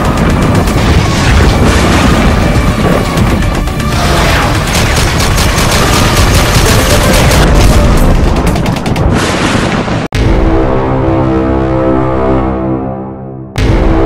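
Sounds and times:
animated intro music: 0.0 - 14.0
gunfire volleys: 4.0 - 8.0.

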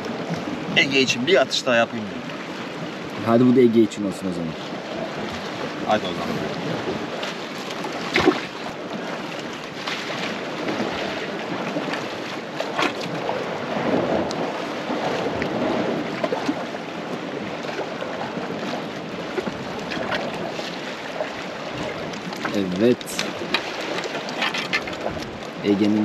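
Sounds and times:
sea washing against rocks: 0.0 - 26.0
wind buffeting microphone: 21.5 - 26.0.

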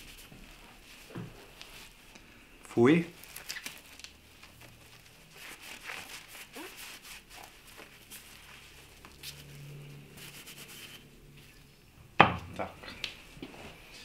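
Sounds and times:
faint rubbing and scraping: 4.5 - 11.8.

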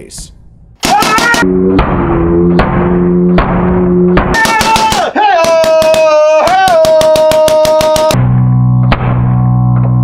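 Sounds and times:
sustained low chords: 0.0 - 0.8, 1.4 - 4.4, 8.2 - 10.0
drum hits: 0.8 - 8.3
high sliding lead melody: 1.4 - 4.3.

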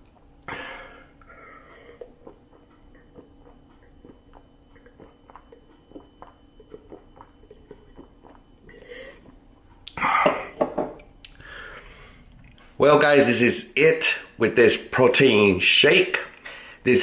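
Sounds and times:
person gulping a drink: 0.0 - 11.4.

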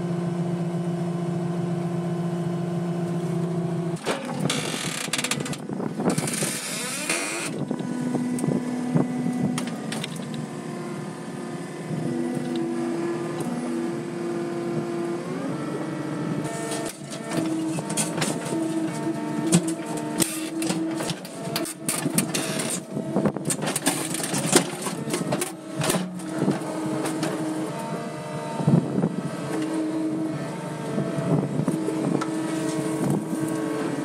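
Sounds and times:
earthmoving machine engine running: 0.0 - 34.0
metal clanking and scraping on rock: 16.5 - 27.4.

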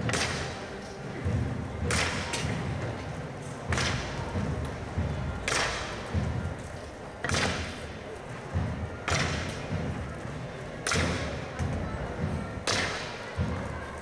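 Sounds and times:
wooden poles knocking on street: 7.2 - 7.9, 8.6 - 10.0.

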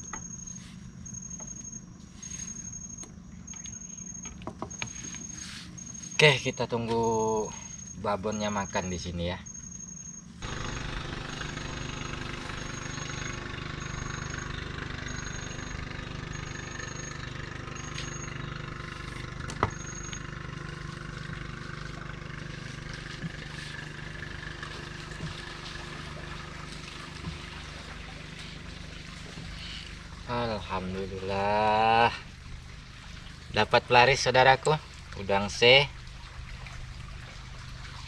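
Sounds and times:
constant high hiss: 0.0 - 38.0
low motor hum: 0.0 - 38.0
high-pitched chirp: 12.3 - 21.2.

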